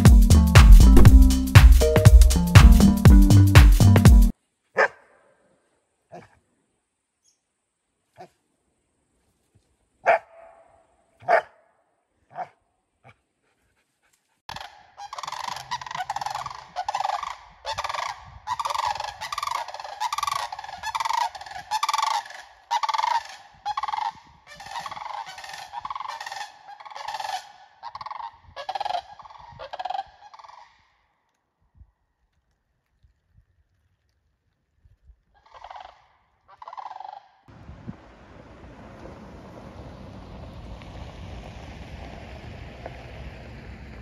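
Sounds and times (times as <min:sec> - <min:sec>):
dog barking: 0:04.8 - 0:05.4, 0:06.1 - 0:06.4, 0:10.0 - 0:11.7, 0:12.3 - 0:13.2
goose honking: 0:14.5 - 0:30.0.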